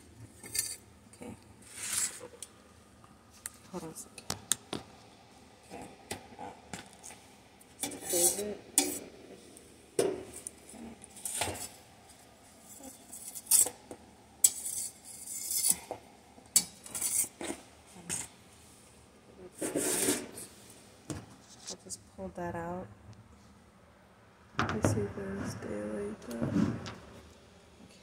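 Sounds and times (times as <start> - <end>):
metal kitchenware scraping: 7.8 - 9.1, 14.4 - 18.3, 19.5 - 20.5.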